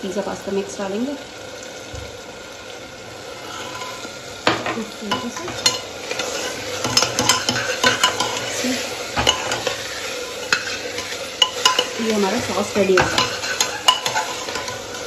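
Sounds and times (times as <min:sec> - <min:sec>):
frying sizzle: 0:00.0 - 0:15.0
spoon scraping a pot: 0:05.1 - 0:15.0.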